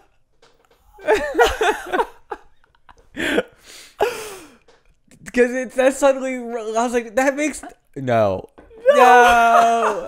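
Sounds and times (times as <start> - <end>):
men laughing: 1.0 - 4.5, 8.8 - 10.0.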